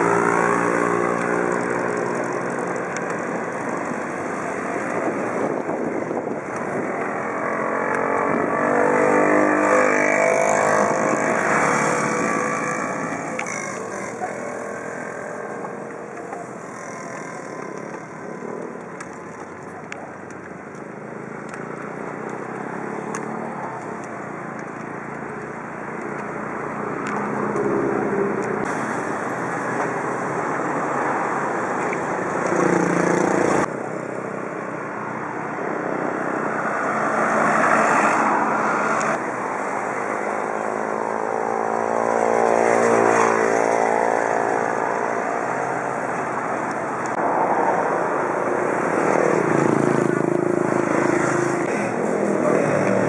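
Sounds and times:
cars passing: 0.0s - 53.0s
steady road noise: 0.0s - 53.0s.

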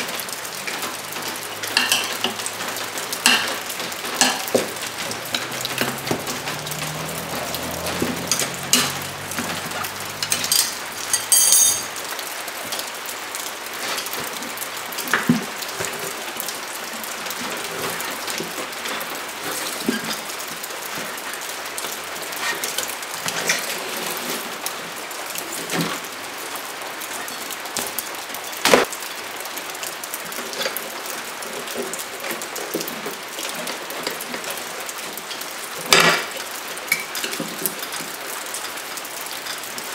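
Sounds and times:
tire irons clinking on metal rim: 0.6s - 13.0s.

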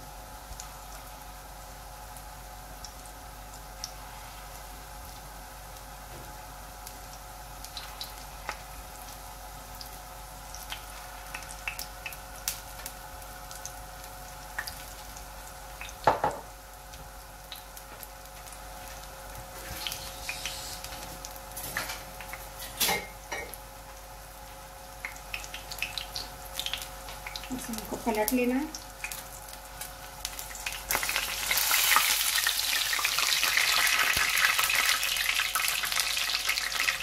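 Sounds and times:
fritters sizzling in hot oil: 0.0s - 37.0s
oil crackling and popping: 6.8s - 16.2s, 16.9s - 22.9s, 25.0s - 37.0s.

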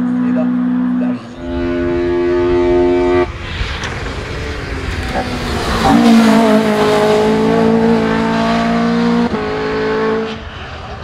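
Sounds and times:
race car engine at high revs: 0.0s - 11.0s
rushing noise: 1.3s - 9.0s.

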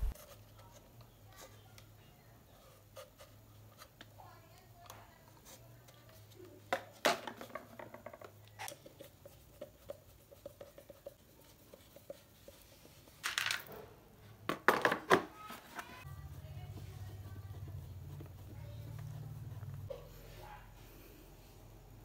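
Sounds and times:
plastic parts clattering: 13.2s - 13.8s
plastic parts clicking and knocking: 13.2s - 13.8s, 14.5s - 15.3s.

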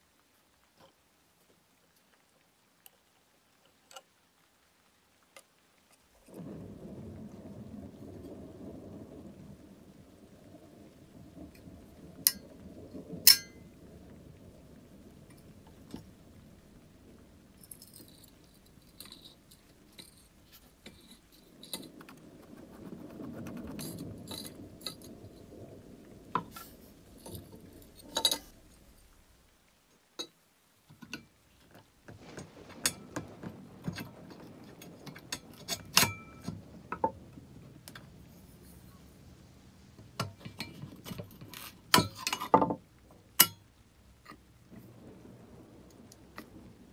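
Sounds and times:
low handling rumble: 6.3s - 29.8s.

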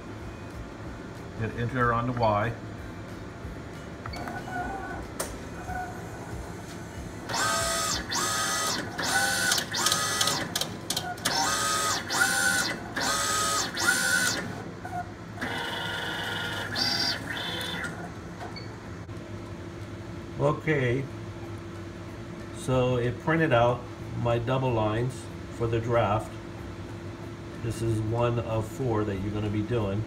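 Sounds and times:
drive motor whining: 4.0s - 18.6s.

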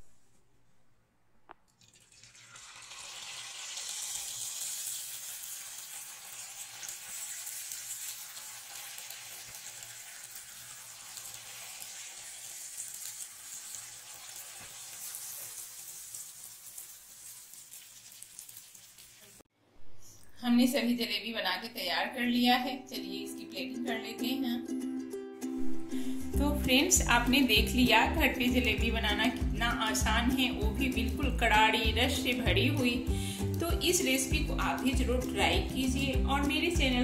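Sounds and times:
batter sizzling in hot oil: 1.8s - 19.5s.

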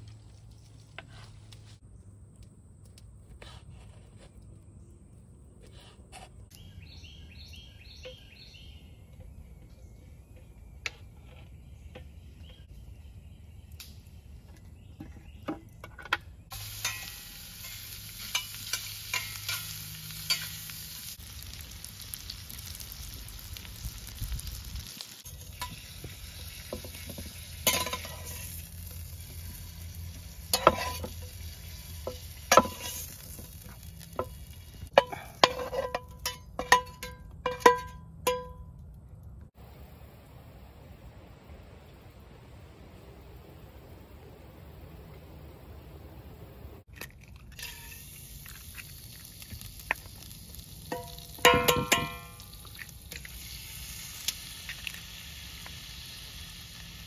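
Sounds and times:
bird chirping: 6.5s - 16.5s
food sizzling in a pan: 16.5s - 35.8s, 47.6s - 57.0s.

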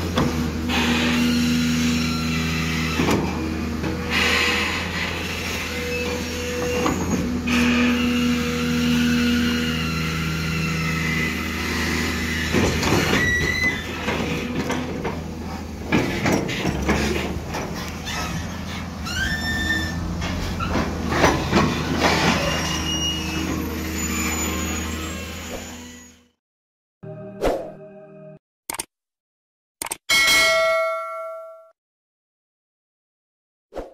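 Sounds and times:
excavator diesel engines running: 0.0s - 25.8s
high squeals of steel: 4.1s - 14.5s, 18.0s - 20.8s, 21.7s - 26.2s.

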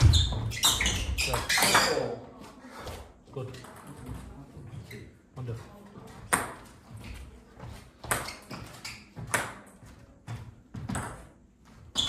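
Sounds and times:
table tennis ball bouncing: 6.2s - 6.7s, 8.0s - 9.8s, 10.8s - 11.4s.

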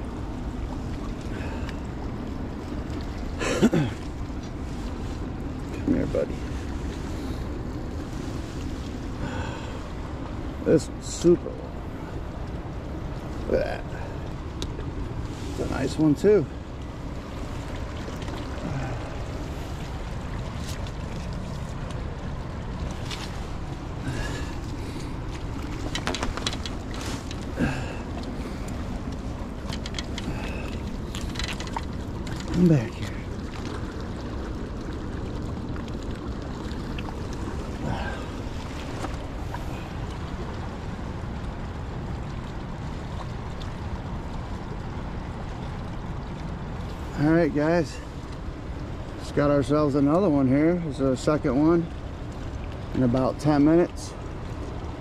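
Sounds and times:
landing net clicks and rustles: 25.6s - 27.5s
short low grunt: 27.5s - 28.1s.

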